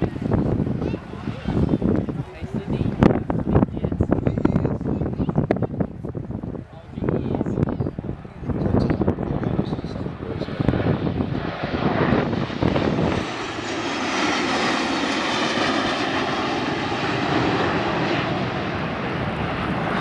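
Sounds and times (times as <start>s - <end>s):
jet fighters flying past: 7.9s - 20.0s.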